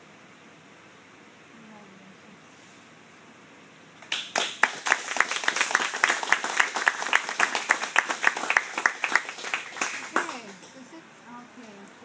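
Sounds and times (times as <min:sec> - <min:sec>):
loud nearby hand clapping: 0:04.0 - 0:10.8
small group applauding: 0:04.0 - 0:10.9.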